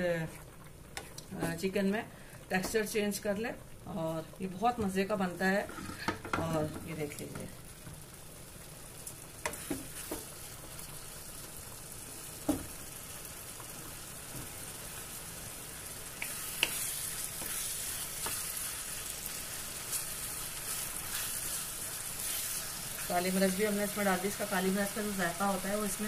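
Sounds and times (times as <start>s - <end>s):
chicken sizzling in a frying pan: 6.6s - 26.0s
wooden spoon knocking on pan: 12.4s - 12.7s.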